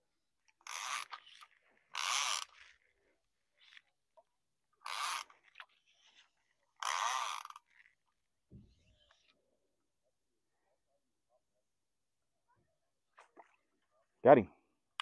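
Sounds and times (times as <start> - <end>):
fly line zipping swishes: 4.9 - 5.3, 6.8 - 7.6.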